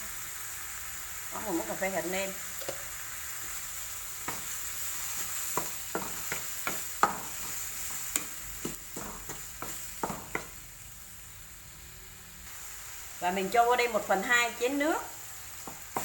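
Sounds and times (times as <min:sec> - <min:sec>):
tomatoes sizzling in hot oil: 0:00.0 - 0:16.0
wooden spatula scraping a wok: 0:03.3 - 0:10.6.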